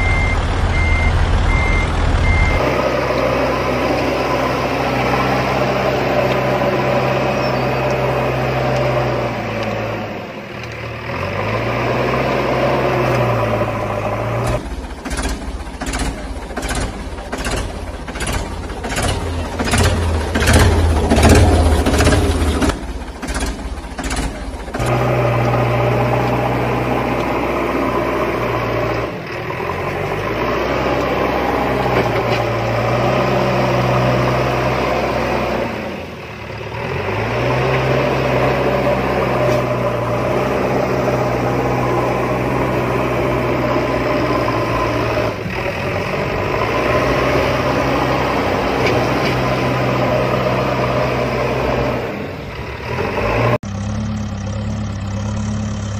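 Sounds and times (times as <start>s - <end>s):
engine idling drone: 13.1s - 30.3s.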